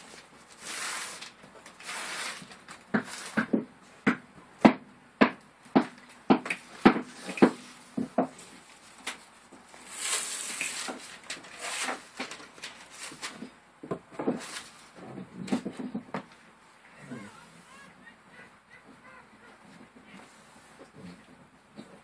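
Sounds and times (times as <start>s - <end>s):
paper rustling: 0.0s - 3.6s, 5.9s - 15.9s
planks knocking and tapping: 2.9s - 8.4s.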